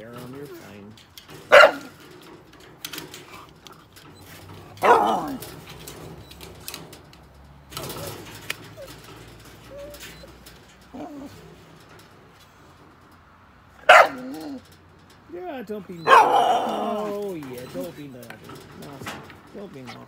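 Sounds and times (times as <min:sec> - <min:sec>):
dogs barking: 0:01.4 - 0:02.0, 0:04.7 - 0:05.6, 0:13.8 - 0:14.6, 0:16.0 - 0:17.2
dogs yelping and whining: 0:03.2 - 0:06.4, 0:07.8 - 0:11.5, 0:13.8 - 0:14.7, 0:16.0 - 0:17.9.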